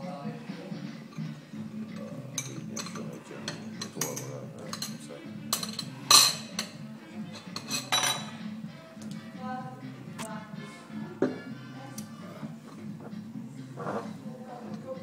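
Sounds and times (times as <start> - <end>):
background music: 0.0 - 15.0
voices: 0.0 - 15.0
glass jar clinking on saucer: 2.0 - 8.4.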